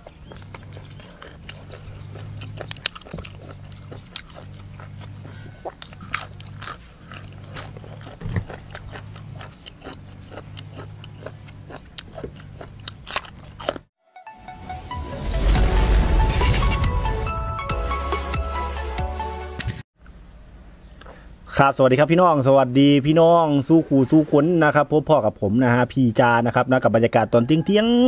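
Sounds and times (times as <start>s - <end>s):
person chewing and crunching: 0.0s - 13.9s
wet mouth clicks: 0.0s - 13.9s.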